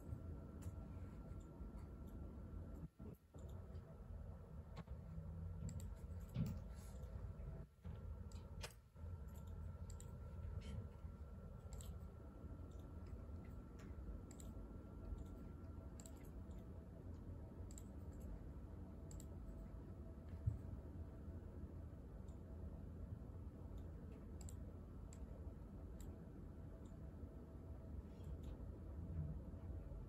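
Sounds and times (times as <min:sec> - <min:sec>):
low room hum: 0:00.0 - 0:30.0
computer clicking: 0:01.4 - 0:03.9, 0:05.6 - 0:07.1, 0:08.2 - 0:10.8, 0:11.4 - 0:19.6, 0:23.6 - 0:25.3.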